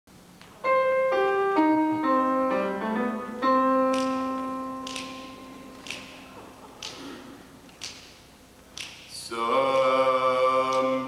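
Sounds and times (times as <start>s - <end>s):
piano notes and chord: 0.6s - 6.7s
finger snaps: 3.9s - 4.2s, 4.8s - 6.2s, 6.8s - 9.1s.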